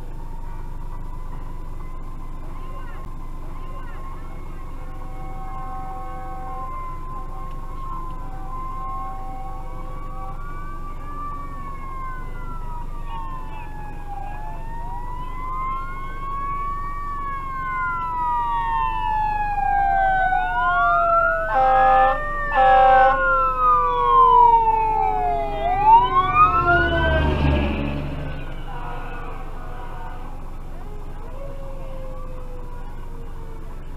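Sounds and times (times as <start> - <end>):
engine rumble: 0.0 - 33.9
fire engine siren wailing: 0.0 - 33.9
horn blasts: 21.5 - 23.3.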